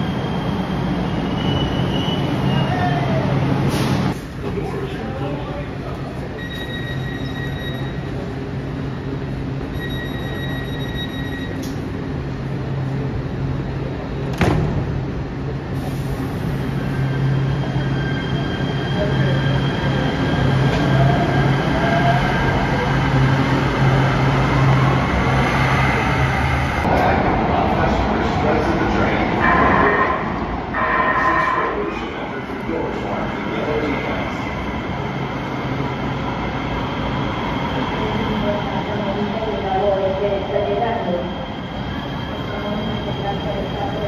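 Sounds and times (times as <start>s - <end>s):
train electric hum and squeal: 0.0s - 4.1s, 5.5s - 14.2s, 15.8s - 26.8s, 28.6s - 44.0s
long electronic beeps: 9.7s - 11.6s.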